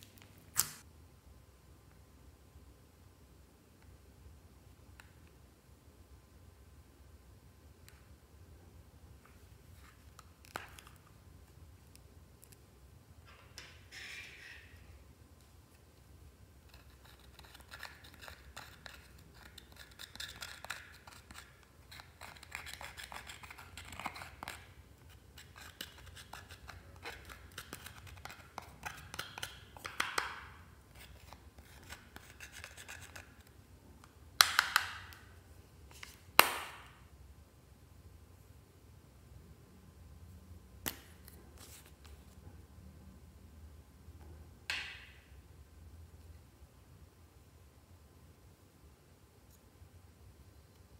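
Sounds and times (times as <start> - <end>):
scissors scraping eyeshadow: 16.7 - 29.6, 31.0 - 33.5.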